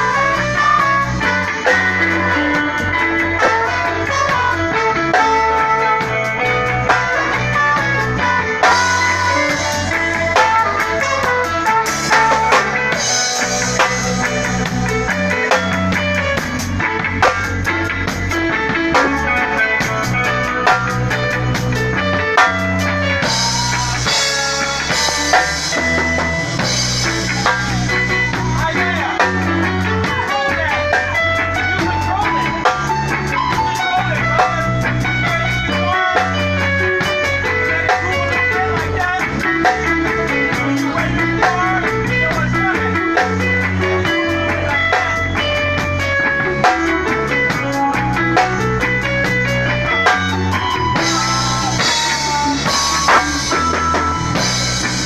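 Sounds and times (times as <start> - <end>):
bass notes: 0.0 - 55.0
electric guitar lead: 0.0 - 55.0
drum beat: 6.5 - 30.8, 48.4 - 55.0.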